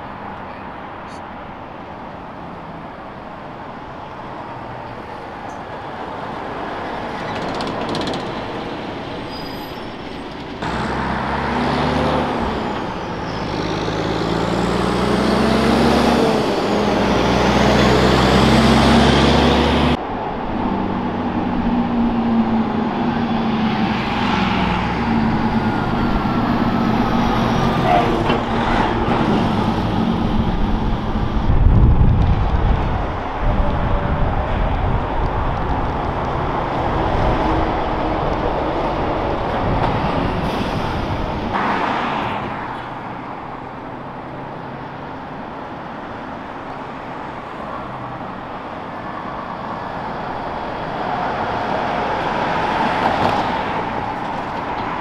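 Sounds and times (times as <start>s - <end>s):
street traffic: 0.0s - 55.0s
truck diesel engine shifting gears: 6.4s - 20.0s, 20.7s - 41.9s.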